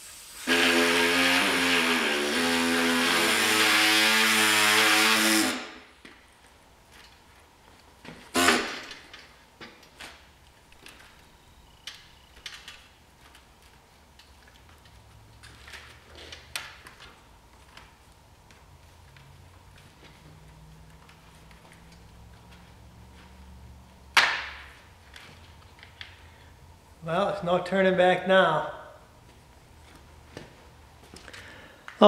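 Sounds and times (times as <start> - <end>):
pneumatic air saw cutting plastic: 0.0 - 5.9, 8.3 - 9.0.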